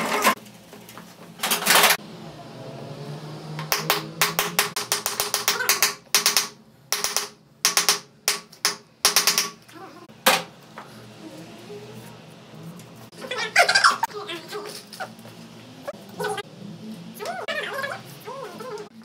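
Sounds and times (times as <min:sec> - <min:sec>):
hammer tapping metal part: 0:03.6 - 0:09.6.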